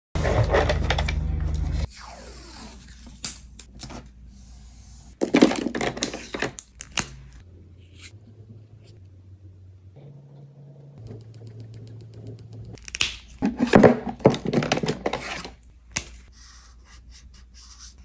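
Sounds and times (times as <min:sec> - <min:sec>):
steady low hum: 0:07.4 - 0:12.8.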